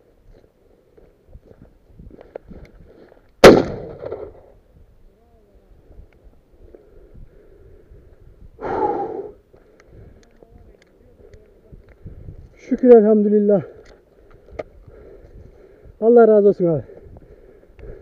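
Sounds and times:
shotgun shot with echo: 0:03.4 - 0:04.4.

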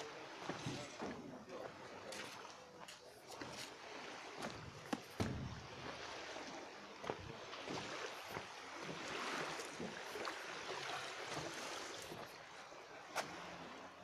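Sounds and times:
sea noise: 0:00.0 - 0:14.0
wind: 0:00.0 - 0:14.0.

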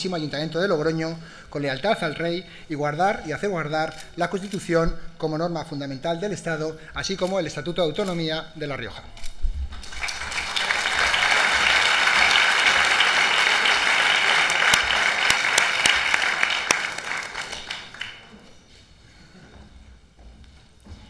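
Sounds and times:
crowd applauding: 0:09.8 - 0:18.5.

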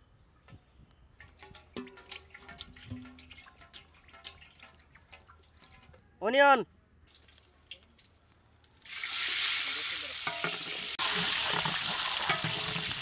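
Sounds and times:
metal ladle scraping pot: 0:01.2 - 0:06.0, 0:10.2 - 0:13.0
onions sizzling in hot oil: 0:08.8 - 0:13.0.

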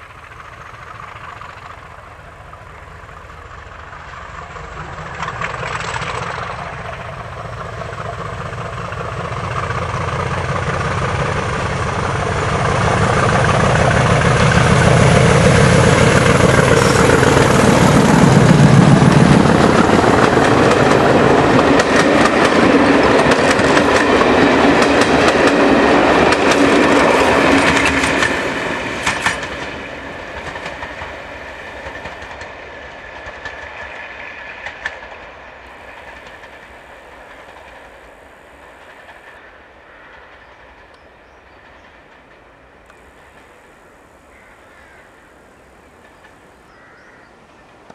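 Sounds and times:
diesel locomotive engine passing: 0:00.0 - 0:47.9
train coaches rumbling past: 0:00.0 - 0:47.9
wheels clicking over rail joints: 0:03.4 - 0:39.4.

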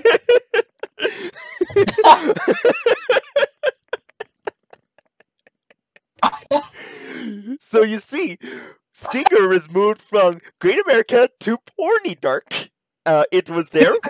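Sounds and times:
men laughing hard: 0:00.0 - 0:06.2.

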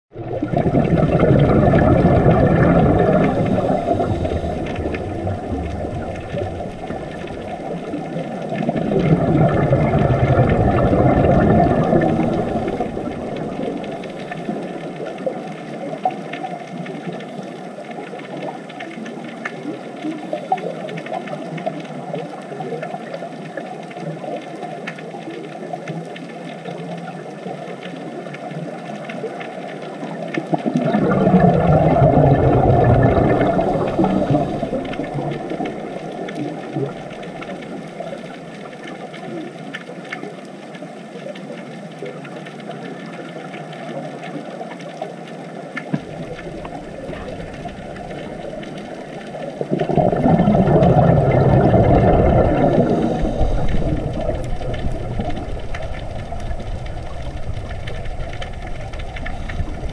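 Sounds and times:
diver exhaling bubbles: 0:00.1 - 0:15.4, 0:30.4 - 0:38.4, 0:45.9 - 0:59.9
regulator bubbles hissing underwater: 0:00.1 - 0:59.9.

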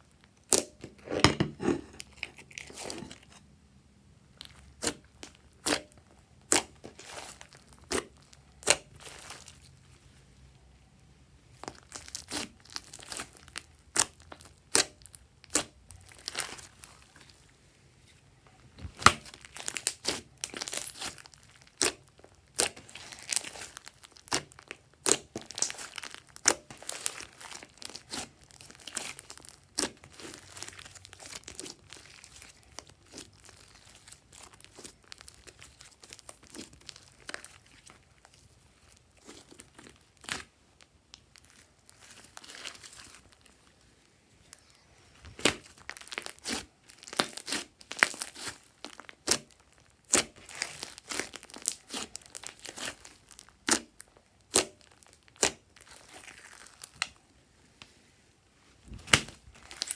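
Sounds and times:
slime squeezed with sticky pops: 0:45.3 - 0:57.2.

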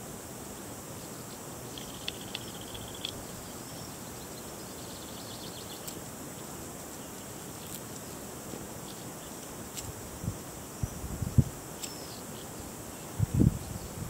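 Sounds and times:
faint high insect buzz: 0:00.0 - 0:14.0
steady hiss: 0:00.0 - 0:14.0
faint ticks: 0:01.7 - 0:03.2.

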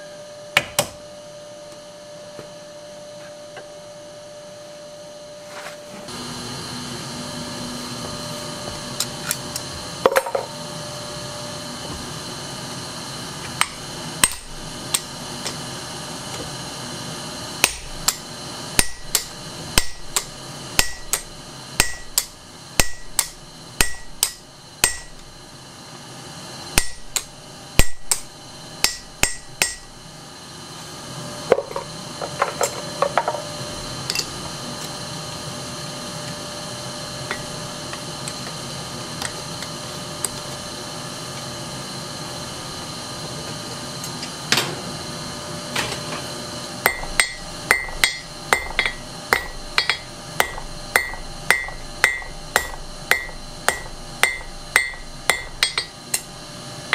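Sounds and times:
hammer striking steel on anvil: 0:13.6 - 0:15.1, 0:17.6 - 0:25.2, 0:26.8 - 0:30.0, 0:46.8 - 0:56.3.

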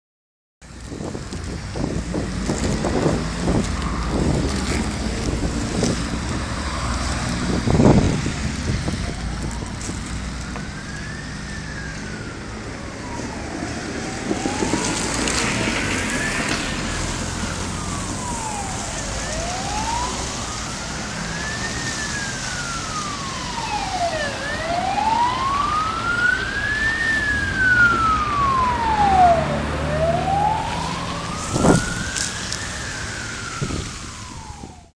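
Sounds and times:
street traffic noise: 0:00.6 - 0:34.9
ambulance siren wailing: 0:01.8 - 0:34.9.

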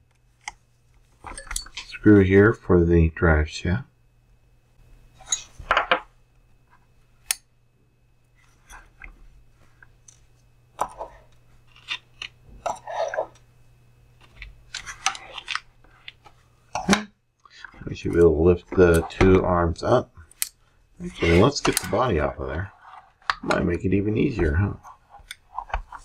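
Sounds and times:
tools and parts handled on workbench: 0:00.1 - 0:02.2, 0:05.1 - 0:07.4, 0:08.4 - 0:13.5, 0:14.2 - 0:19.5, 0:21.2 - 0:26.0.

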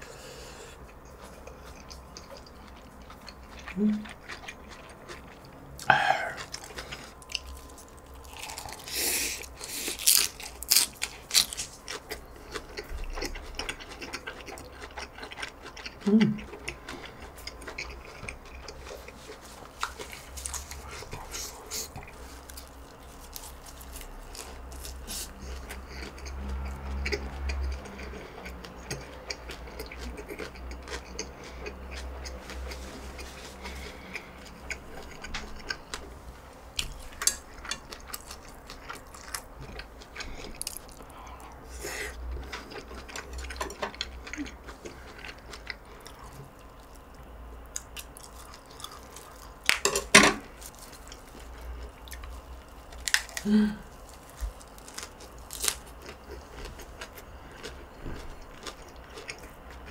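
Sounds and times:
close chewing and mouth sounds: 0:00.0 - 0:59.9
person humming: 0:03.7 - 0:04.0, 0:05.8 - 0:06.4, 0:16.0 - 0:16.4, 0:53.4 - 0:54.0.

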